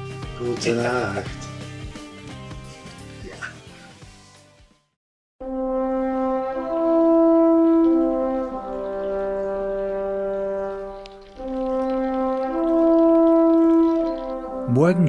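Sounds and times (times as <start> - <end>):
slow horn melody: 5.4 - 15.0.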